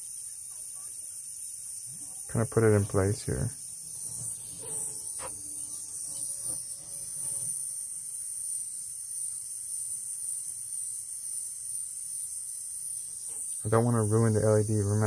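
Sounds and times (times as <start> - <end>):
hot-air tool hissing: 1.2 - 8.7.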